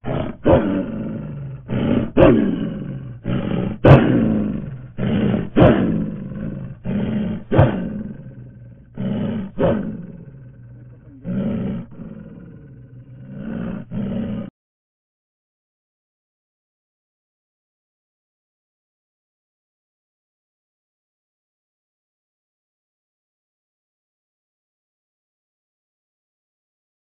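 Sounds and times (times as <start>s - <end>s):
large animal roaring: 0.0s - 14.5s.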